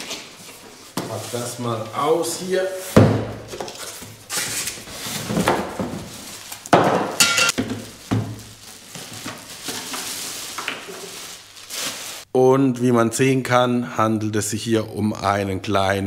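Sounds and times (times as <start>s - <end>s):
plastic wrap rustling: 0.0s - 12.3s
cardboard scraping: 3.6s - 6.3s.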